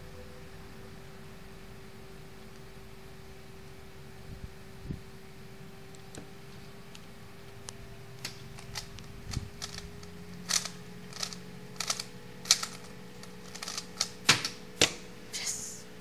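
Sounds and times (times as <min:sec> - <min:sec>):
puzzle cube clicking: 0:08.2 - 0:15.0.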